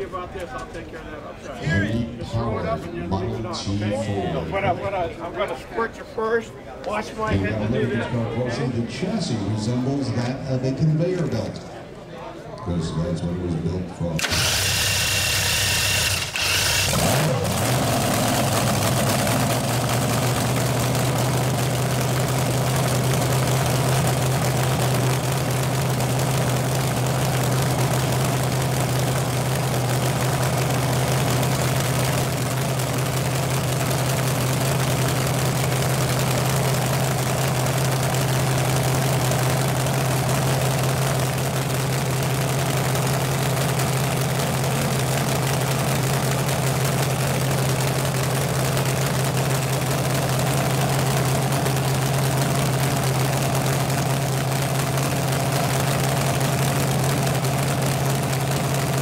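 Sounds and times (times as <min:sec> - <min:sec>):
loud vee eight engine revving and idling: 0:14.2 - 0:59.0.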